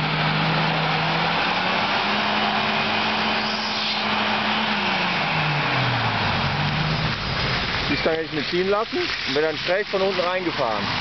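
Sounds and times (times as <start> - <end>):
car engine revving under load: 0.0 - 8.4.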